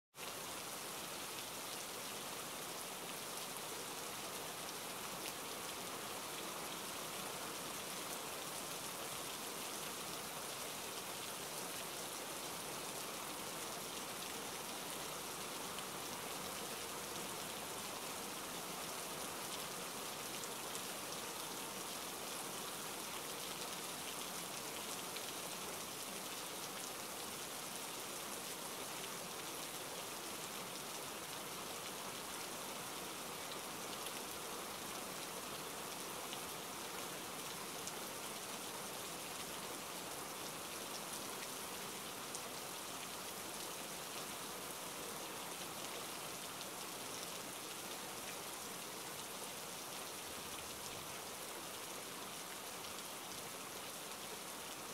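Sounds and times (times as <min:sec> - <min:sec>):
steady rain falling: 0:00.1 - 0:54.9.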